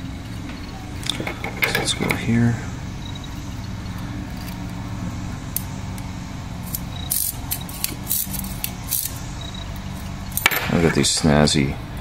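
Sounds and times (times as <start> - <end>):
steady low hum: 0.0 - 12.0
metallic wire scrapes and clicks: 5.5 - 10.5.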